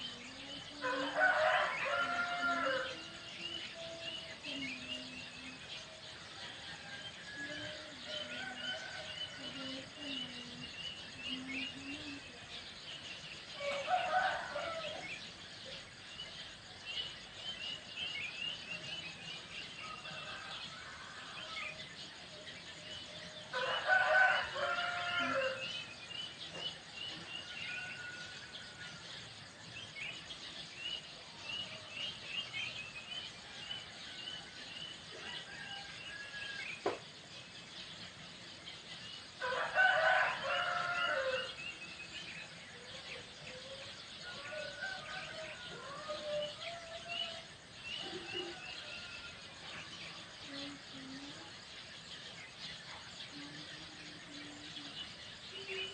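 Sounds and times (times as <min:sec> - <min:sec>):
small birds chirping: 0:00.0 - 0:55.9
rooster crowing: 0:00.8 - 0:03.9, 0:13.6 - 0:15.1, 0:23.5 - 0:25.8, 0:35.2 - 0:37.0, 0:39.4 - 0:41.6, 0:44.2 - 0:49.7.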